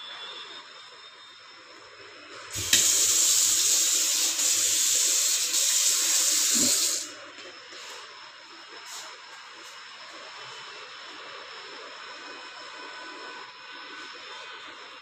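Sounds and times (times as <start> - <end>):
water running into steel sink: 2.5 - 7.1.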